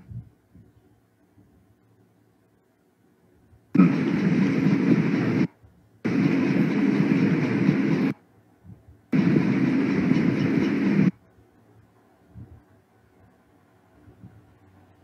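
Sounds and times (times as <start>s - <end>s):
loud steady rushing noise: 3.7s - 15.0s.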